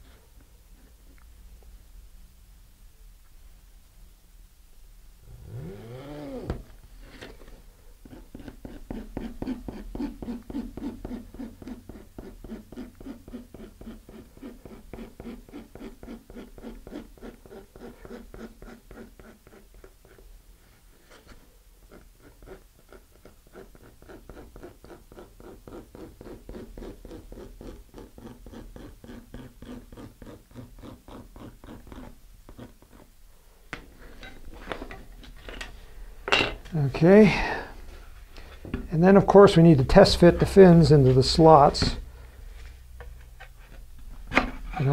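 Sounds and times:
knife blade scratching fiberglass: 0:08.1 - 0:20.2, 0:21.9 - 0:33.1.

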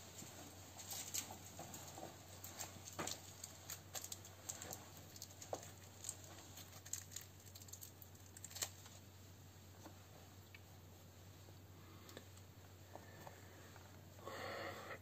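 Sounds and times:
faint low hum: 0:00.0 - 0:15.0
small parts clicking and tapping: 0:00.8 - 0:09.0.

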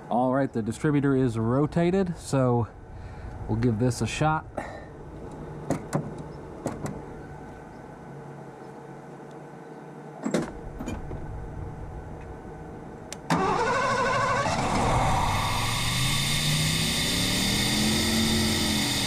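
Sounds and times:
engine catching: 0:10.4 - 0:19.0
starter cranking engine: 0:13.3 - 0:19.0.

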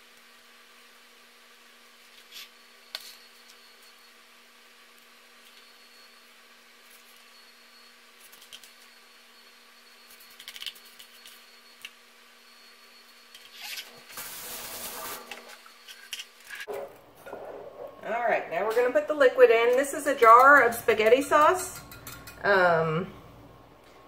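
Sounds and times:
low steady hum: 0:15.3 - 0:24.0
metal spoon scraping ceramic dish: 0:20.2 - 0:22.5.

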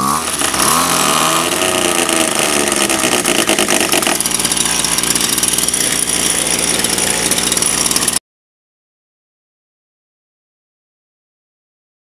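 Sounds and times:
trimmer two-stroke engine revving: 0:00.0 - 0:08.2.

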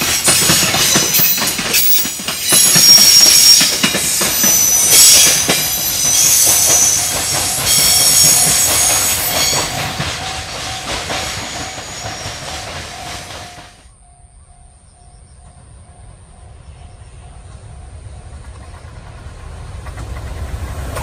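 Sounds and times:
freight train wagons clattering: 0:00.0 - 0:13.9
high-pitched wheel squeal: 0:00.8 - 0:13.6.

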